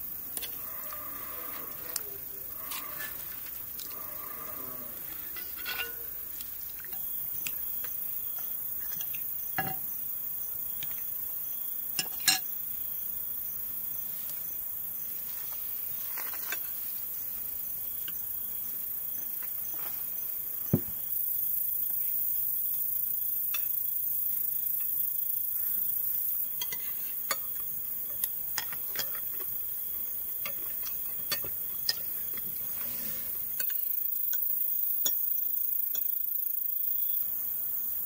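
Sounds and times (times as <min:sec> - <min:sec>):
night insects chirring: 0:00.0 - 0:38.0
spoon clinking on glass and china: 0:05.4 - 0:06.0.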